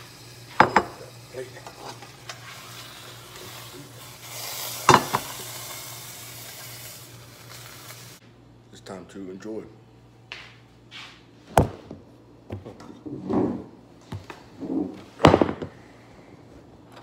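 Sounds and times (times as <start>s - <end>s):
hot pan sizzling: 0.0s - 8.2s.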